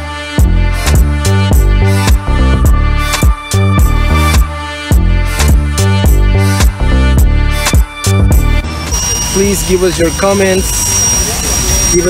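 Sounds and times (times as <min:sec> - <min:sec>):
music with drum beat and bass: 0:00.3 - 0:09.7.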